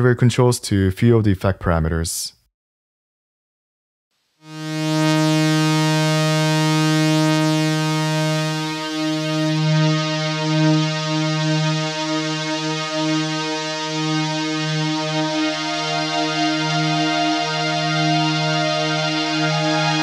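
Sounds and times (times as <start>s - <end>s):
sustained synthesizer note: 4.4s - 20.0s.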